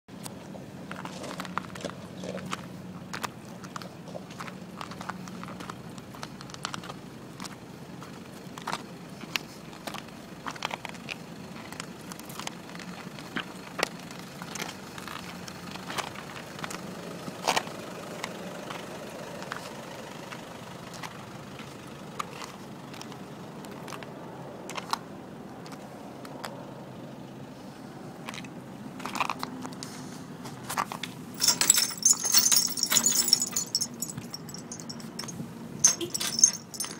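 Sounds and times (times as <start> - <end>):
chains and small bells jangling: 31.3 - 36.9.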